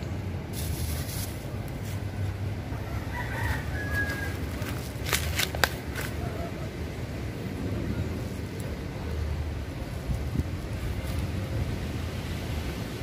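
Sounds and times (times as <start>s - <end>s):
steady low rumble: 0.0s - 13.0s
rooster crowing: 2.7s - 4.7s.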